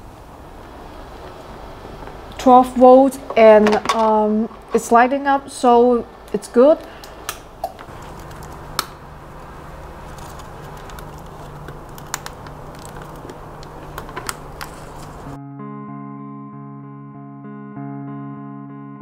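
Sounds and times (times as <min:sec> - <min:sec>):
low steady hum: 0:00.0 - 0:15.4
led strip clicks and rustles: 0:06.3 - 0:15.4
guitar music: 0:15.2 - 0:19.0.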